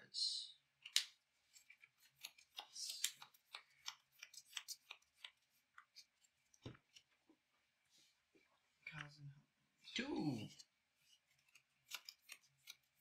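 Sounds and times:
trading cards clicking and snapping: 0.8s - 7.1s, 11.3s - 13.0s.

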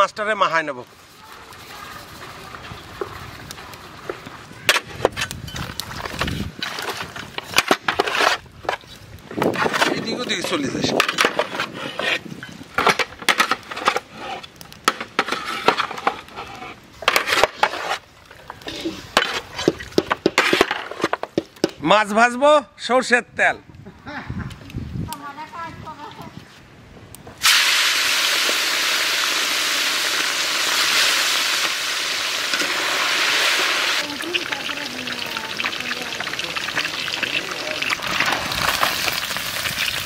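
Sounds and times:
metal spatula scraping a pot: 11.2s - 14.5s, 15.1s - 18.0s
fish frying in oil: 27.4s - 40.0s.

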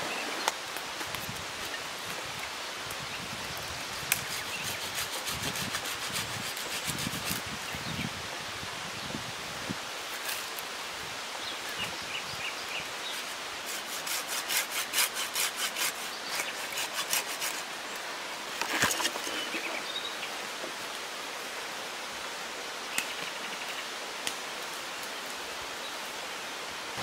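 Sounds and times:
saw rasping through branch: 4.1s - 7.4s, 13.1s - 17.8s, 18.5s - 19.8s.

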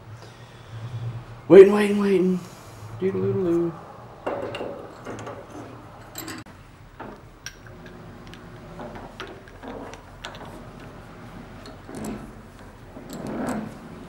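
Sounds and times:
metal parts clicking and knocking: 4.2s - 14.0s.

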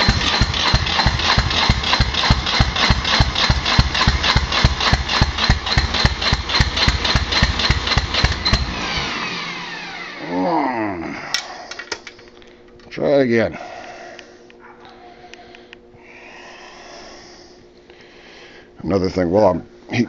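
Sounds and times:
diesel engine cranking: 0.0s - 10.3s
starter motor whine: 0.0s - 10.4s.

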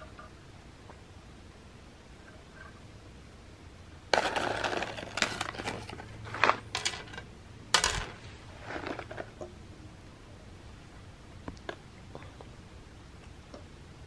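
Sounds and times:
cat treats rattling on plastic: 4.2s - 7.2s
platter clattering scrapes: 4.2s - 9.3s.

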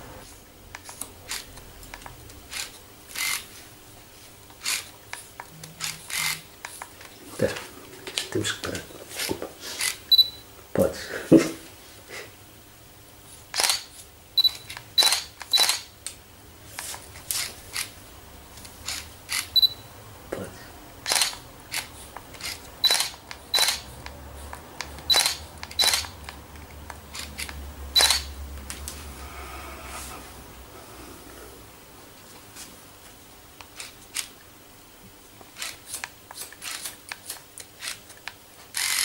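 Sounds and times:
scissors snipping hair: 35.6s - 39.0s.

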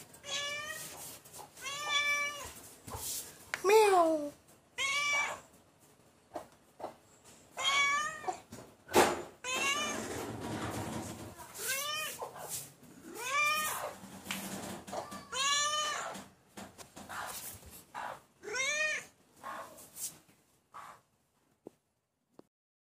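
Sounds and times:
rough rustling noise: 0.0s - 4.6s, 9.9s - 15.0s, 19.3s - 21.0s
cat meowing: 0.2s - 1.0s, 1.6s - 2.6s, 4.8s - 5.5s, 7.6s - 8.5s, 9.4s - 10.1s, 13.0s - 14.0s, 14.9s - 16.3s, 18.4s - 19.2s.

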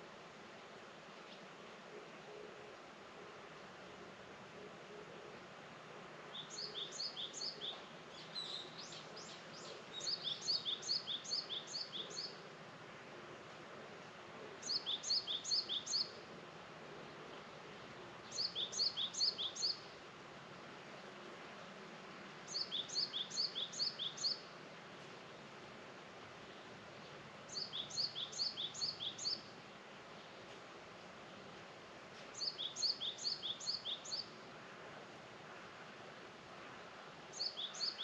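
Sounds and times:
faint outdoor hiss: 0.0s - 38.0s
songbird chirping: 6.3s - 12.5s, 14.6s - 16.3s, 17.0s - 20.0s, 22.4s - 24.6s, 26.4s - 30.5s, 32.2s - 34.4s, 37.3s - 38.0s.

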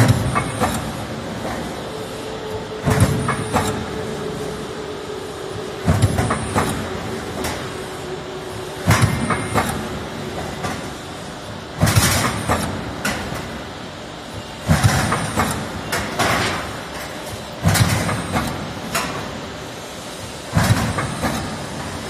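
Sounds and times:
machine motor hum: 0.0s - 13.6s.

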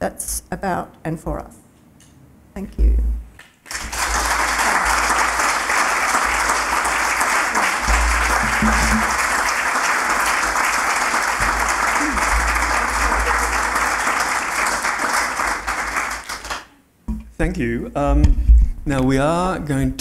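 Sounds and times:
audience applauding: 3.6s - 16.8s.

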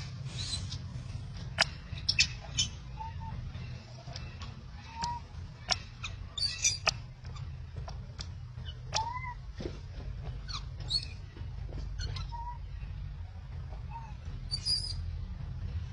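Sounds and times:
steady low rumble: 0.0s - 15.9s
monkey infant squeaks and chirps: 0.2s - 0.9s, 1.5s - 3.4s, 4.7s - 7.5s, 8.6s - 9.4s, 10.5s - 11.2s, 12.0s - 12.7s, 13.8s - 15.1s.

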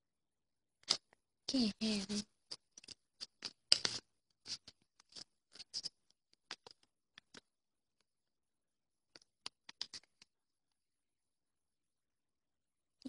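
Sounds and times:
paper banknote crinkling: 1.8s - 7.5s.

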